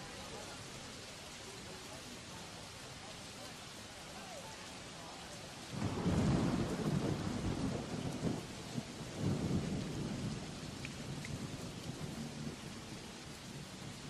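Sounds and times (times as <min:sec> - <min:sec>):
steady rainfall hiss: 0:00.0 - 0:14.0
rolling thunder: 0:05.7 - 0:13.6.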